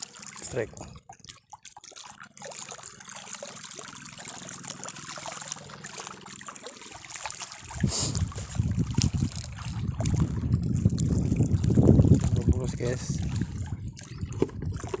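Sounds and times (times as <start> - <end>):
seawater lapping at shore: 0.0 - 15.0
microphone handling rumble: 7.8 - 15.0.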